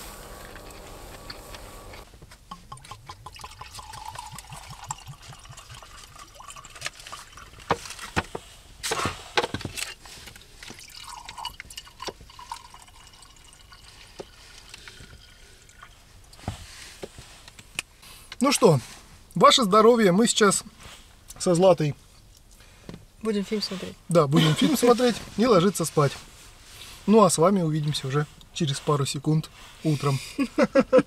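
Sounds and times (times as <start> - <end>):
drink pouring into cup: 0.0 - 8.1, 10.3 - 16.4
bottle and cups knocking: 2.5 - 6.0.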